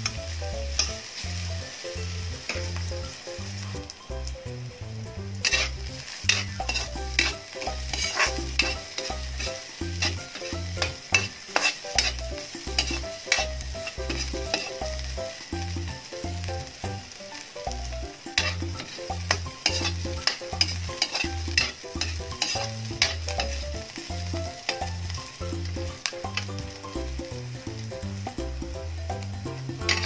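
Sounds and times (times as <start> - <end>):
food sizzling: 0.0 - 30.0
metal spatula clacking on wok: 5.4 - 15.0, 18.3 - 23.6.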